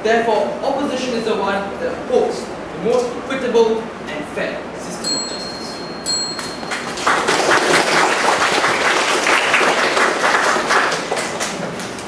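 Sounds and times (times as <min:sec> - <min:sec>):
audience applauding: 0:06.7 - 0:12.0.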